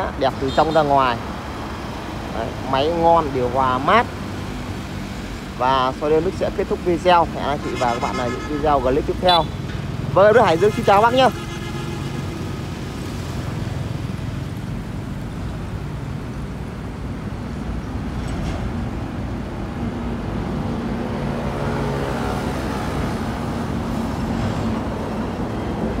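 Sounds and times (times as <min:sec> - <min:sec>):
road traffic noise: 0:00.0 - 0:26.0.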